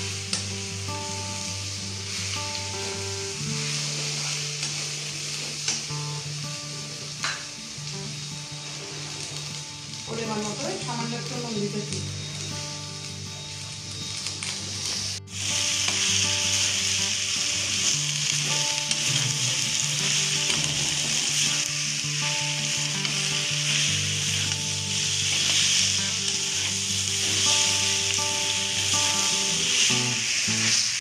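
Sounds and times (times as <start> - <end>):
vegetables sizzling in a wok: 0.0 - 31.0
spatula stirring in a wok: 1.4 - 5.9.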